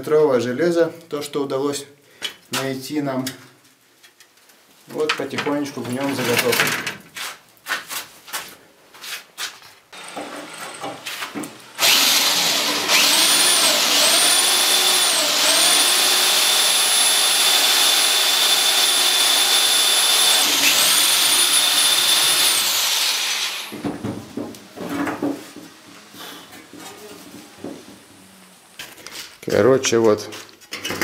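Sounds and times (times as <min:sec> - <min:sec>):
electric drill whining: 0:10.0 - 0:11.0, 0:11.7 - 0:23.8.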